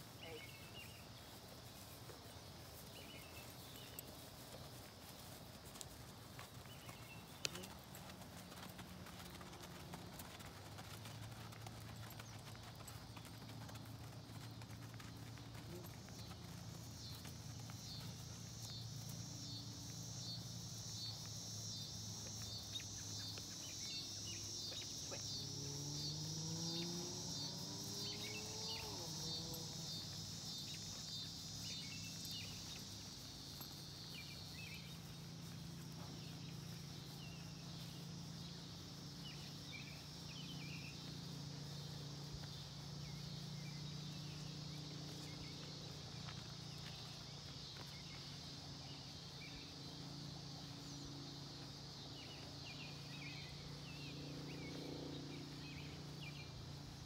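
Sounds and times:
insects chirping: 0.0s - 57.0s.

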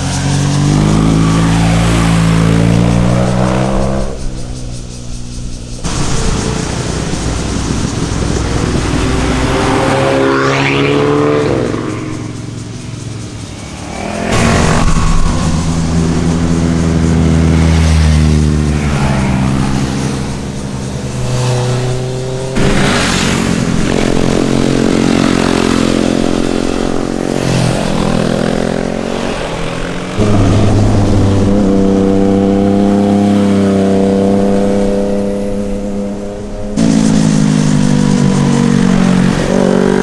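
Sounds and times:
motorcycles passing and accelerating: 0.0s - 40.0s.

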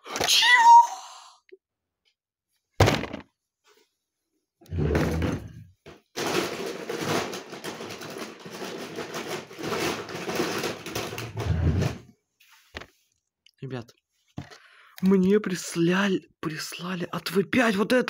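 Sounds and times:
plastic packaging rustling: 6.1s - 11.4s.

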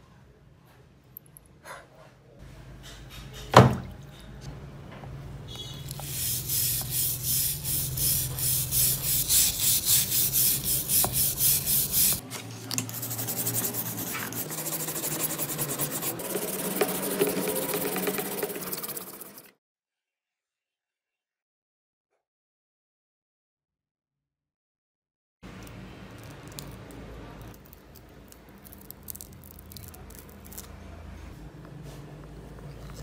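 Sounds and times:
wire brush scrubbing metal: 5.9s - 12.2s, 12.8s - 19.5s.

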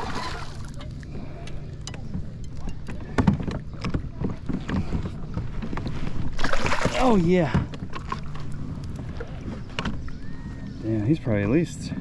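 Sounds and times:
low steady hum: 0.0s - 12.0s
fish splashing: 6.2s - 8.6s.

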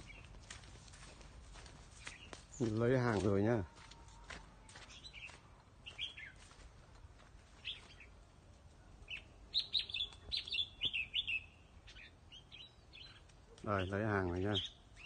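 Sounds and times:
bird chirping: 0.0s - 0.3s, 4.7s - 6.6s, 7.6s - 8.2s, 9.0s - 15.0s.

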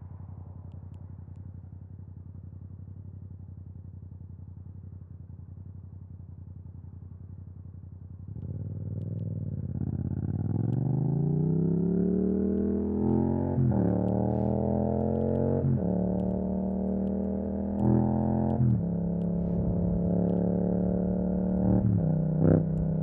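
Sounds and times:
motorcycle engine revving: 8.3s - 23.0s.

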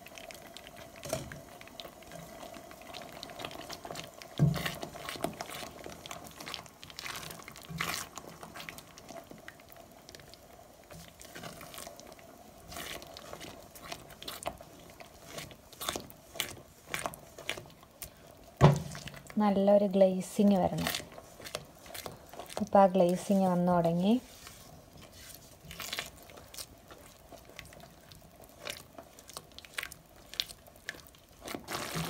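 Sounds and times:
spatula scraping thick mixture: 3.4s - 9.1s, 10.9s - 18.2s, 20.2s - 32.0s.

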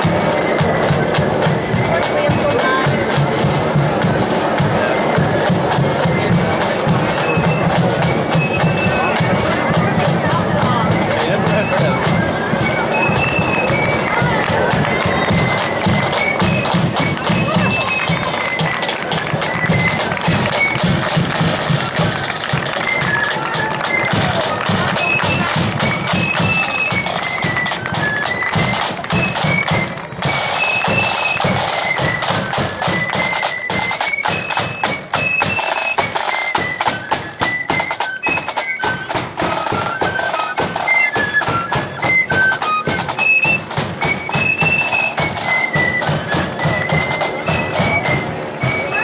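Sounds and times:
flutes playing melody: 0.0s - 49.0s
rapid snare drumming: 0.0s - 49.0s.

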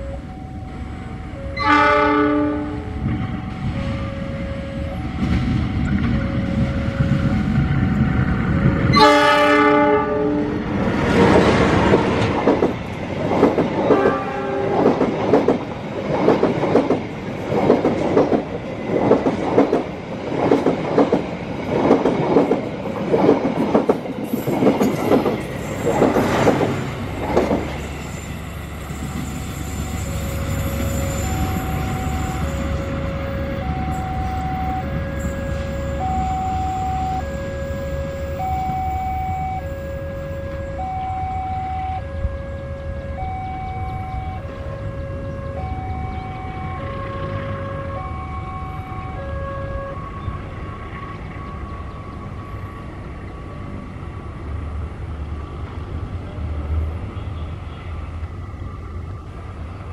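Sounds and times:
locomotive engine rumble: 0.0s - 59.9s
train horn blasts: 1.3s - 5.0s, 8.9s - 10.7s, 13.9s - 14.9s, 29.0s - 50.5s
train wheels clickety-clack: 10.9s - 36.3s.

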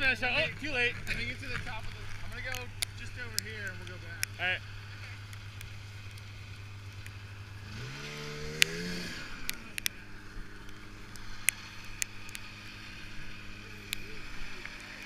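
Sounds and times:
snowmobile engine revving: 0.0s - 15.0s
sharp clicks: 1.0s - 4.4s, 5.2s - 6.3s, 8.4s - 10.0s, 10.6s - 12.5s.

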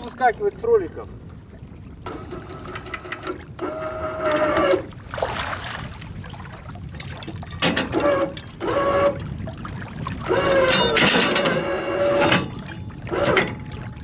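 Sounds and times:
anchor winch motor whine: 2.0s - 5.0s, 7.6s - 9.4s, 10.2s - 13.8s.

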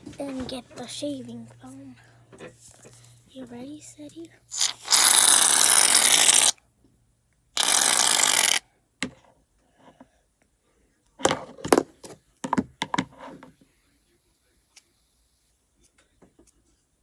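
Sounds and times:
aerosol can spraying: 4.5s - 6.5s.

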